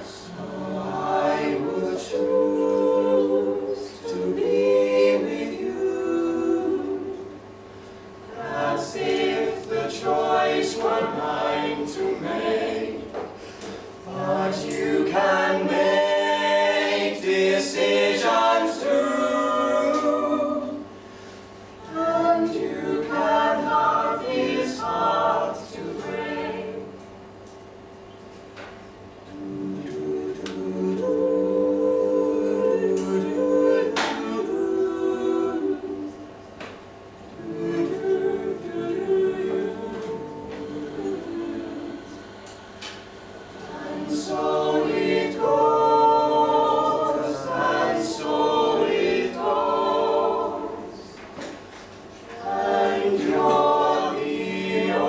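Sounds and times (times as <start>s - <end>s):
a cappella group singing: 0.0s - 27.3s, 29.3s - 55.0s.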